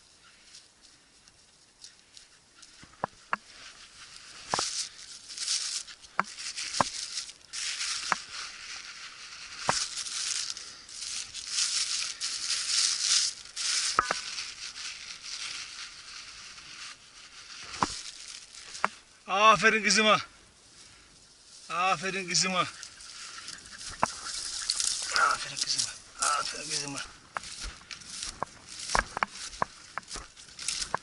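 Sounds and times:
footsteps rustling through dry grass: 0.0 - 31.0
stems and twigs snapping: 4.4 - 8.6, 9.4 - 15.9, 17.6 - 19.0, 22.8 - 31.0.

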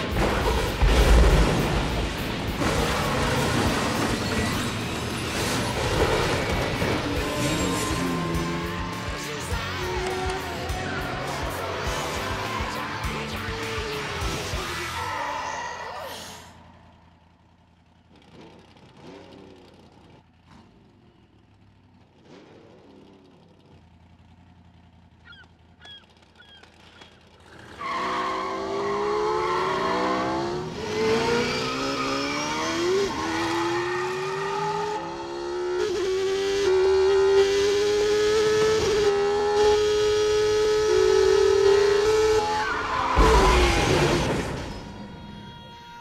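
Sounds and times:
race car engines revving: 0.0 - 46.0
faint gull calls: 25.2 - 27.1.

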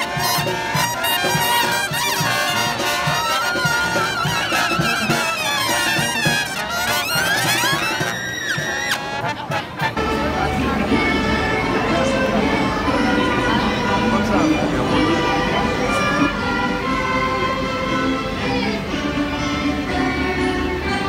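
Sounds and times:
upbeat brass instrumental music: 0.0 - 11.4.

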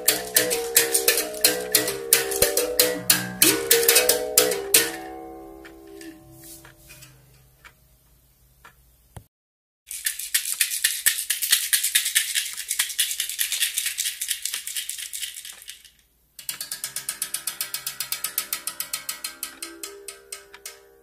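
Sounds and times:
percussion rattle shaken: 0.0 - 5.1, 9.9 - 21.0.

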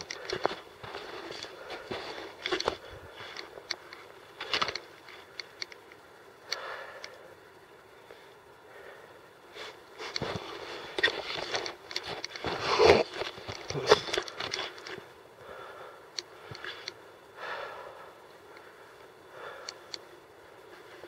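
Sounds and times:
footsteps crunching on rocky ground: 0.2 - 3.7.

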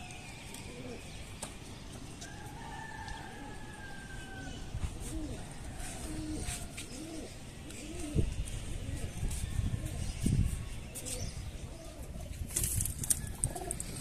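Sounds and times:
pigeons cooing: 0.6 - 1.2, 3.3 - 10.2, 10.9 - 12.5, 13.1 - 14.0.

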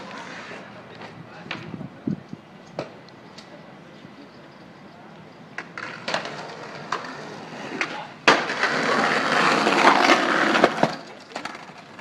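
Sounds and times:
skateboard wheels rolling on concrete: 0.0 - 12.0
skateboard landing smack: 7.8 - 8.8.

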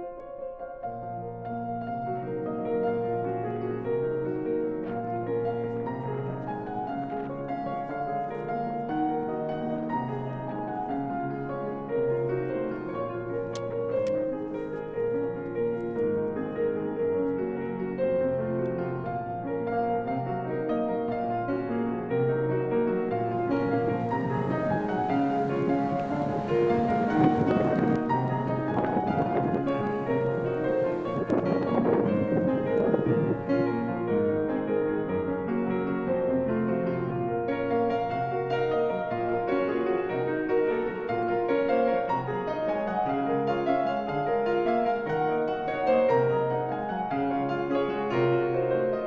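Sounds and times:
slow piano music: 0.0 - 49.0
faint hiss: 23.0 - 34.3.

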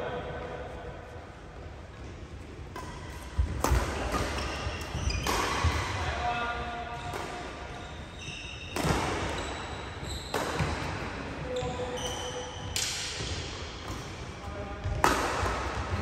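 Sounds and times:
rackets hitting shuttlecock: 2.7 - 6.3, 6.9 - 7.8, 8.7 - 9.6, 10.3 - 11.3, 12.6 - 16.0.

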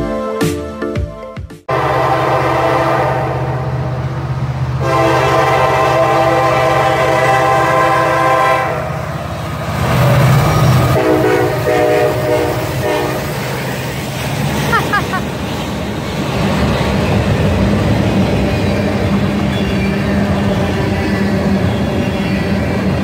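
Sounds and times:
locomotive horn blasts: 1.7 - 3.9, 4.8 - 9.0, 10.9 - 13.5
diesel engines rumbling: 1.7 - 23.0.

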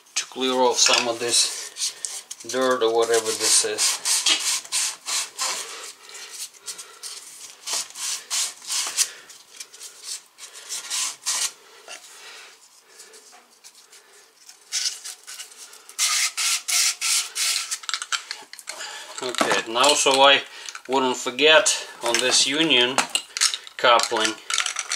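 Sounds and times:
sandpaper scratching pipe: 0.4 - 12.0, 12.6 - 17.9.

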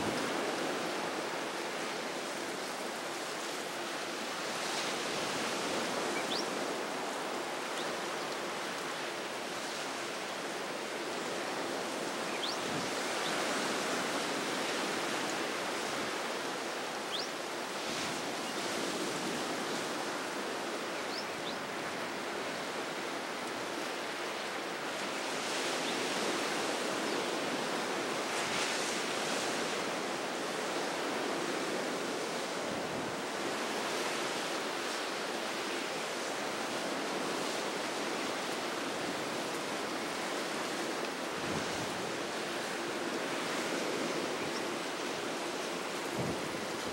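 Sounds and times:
choppy sea and surf: 0.0 - 46.9
wind noise: 41.3 - 46.9.

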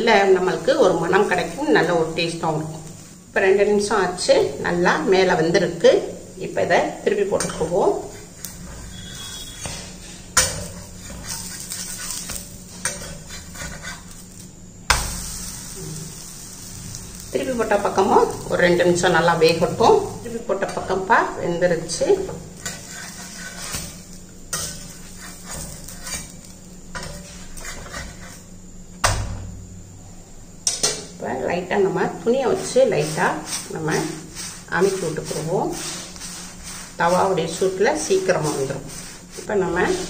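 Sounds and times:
metal spatula scraping metal pan: 6.9 - 14.4, 17.6 - 28.5, 32.4 - 40.0.

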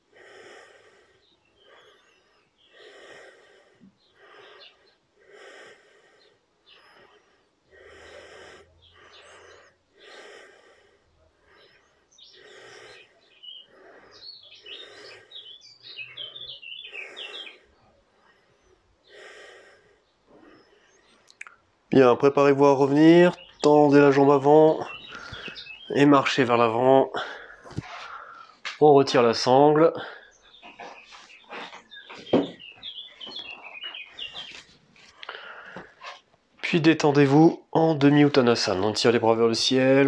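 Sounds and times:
person breathing in and out: 0.0 - 21.8, 24.5 - 25.9, 27.1 - 28.8, 29.8 - 36.3
birds chirping: 0.0 - 40.0.

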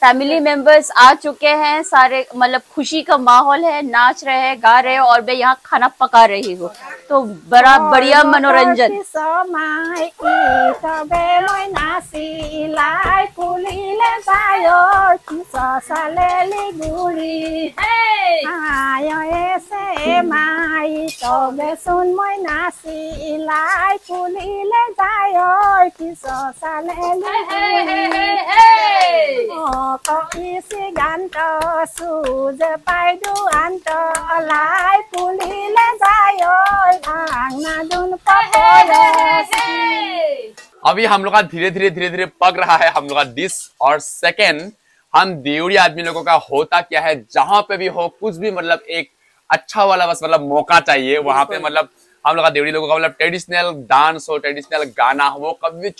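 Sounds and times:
women singing: 6.5 - 40.6
hands clapping: 9.8 - 22.7, 25.6 - 40.0.

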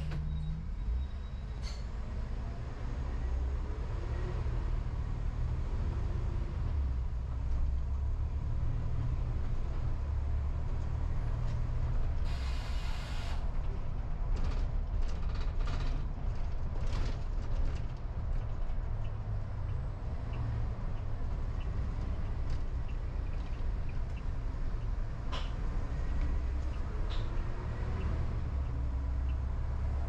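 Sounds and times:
car engine and road noise: 0.0 - 30.0
short hiss: 12.3 - 13.4.

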